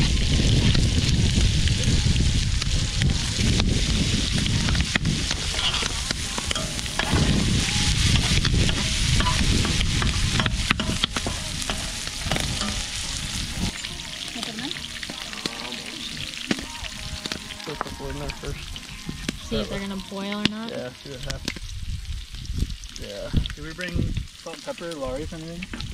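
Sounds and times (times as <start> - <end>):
bacon sizzling in a pan: 0.0 - 25.9
fat popping and spattering: 0.0 - 25.9.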